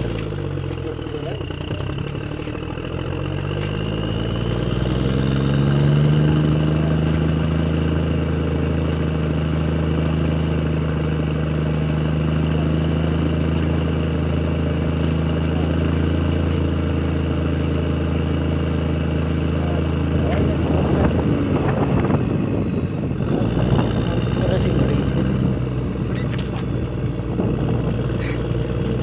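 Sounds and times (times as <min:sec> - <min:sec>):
engine humming steadily: 0:00.0 - 0:29.0.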